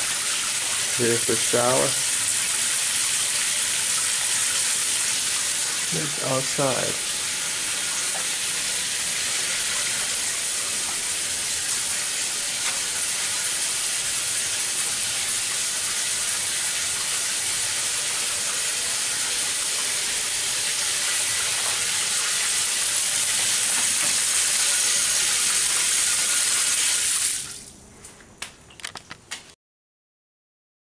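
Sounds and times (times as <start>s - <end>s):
falling water hissing: 0.0s - 27.7s.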